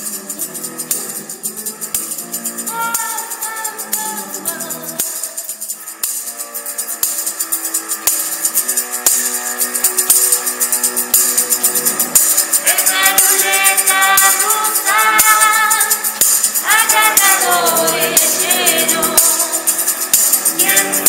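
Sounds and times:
bright high-pitched percussion: 0:00.0 - 0:21.0
woman singing: 0:02.6 - 0:05.5, 0:12.6 - 0:19.7, 0:20.5 - 0:21.0
held guitar chords: 0:09.9 - 0:21.0.

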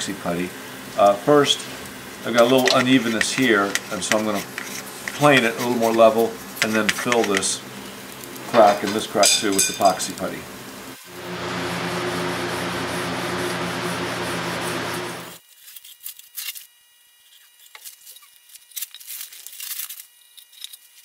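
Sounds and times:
steel wool scrubbing wet wood: 0:00.1 - 0:10.7
paper and tape rustling: 0:01.4 - 0:07.5, 0:15.4 - 0:21.0.

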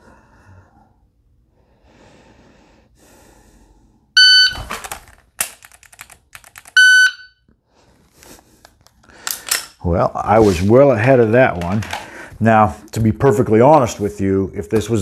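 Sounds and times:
shot timer beep: 0:04.2 - 0:04.6, 0:06.8 - 0:07.4.

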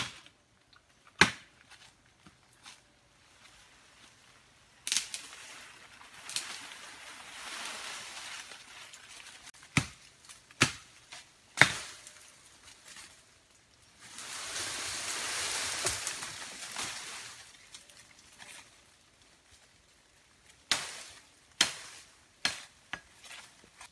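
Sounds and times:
leaves and brush rustling: 0:00.0 - 0:23.9
sticks snapping: 0:04.8 - 0:05.4.

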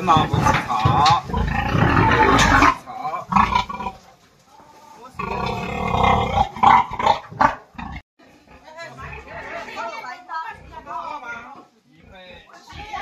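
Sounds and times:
pig squealing: 0:00.0 - 0:04.0, 0:12.1 - 0:13.0.

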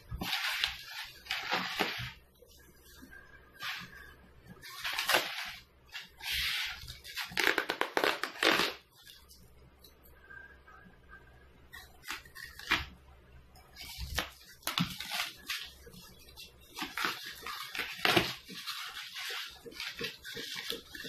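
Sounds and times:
polystyrene foam squeaking and crunching: 0:00.0 - 0:02.3, 0:03.6 - 0:09.0, 0:13.8 - 0:21.0.

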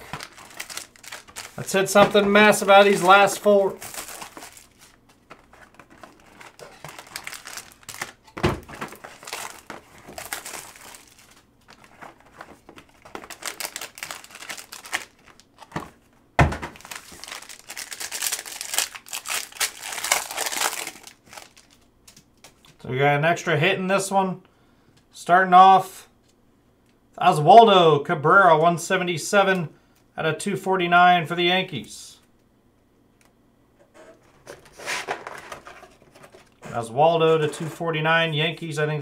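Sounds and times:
plastic and foil wrapping crinkling: 0:00.0 - 0:22.6.

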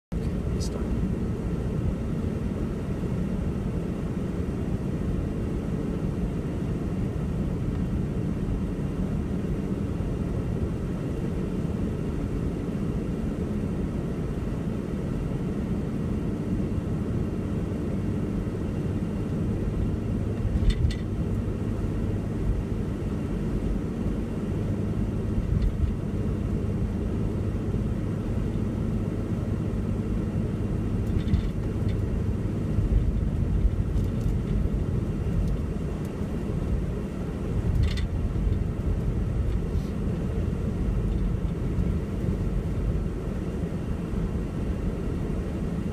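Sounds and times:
car driving rumble inside cabin: 0:00.1 - 0:45.9.

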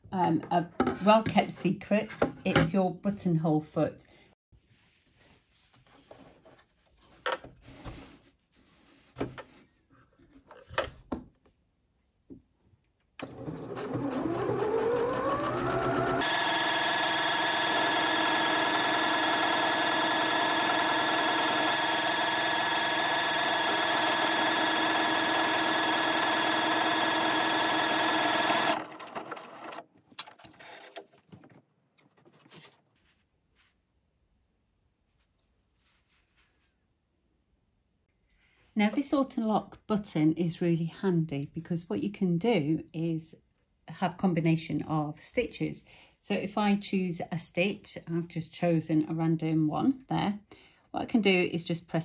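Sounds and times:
sewing machine whining: 0:13.2 - 0:29.8.

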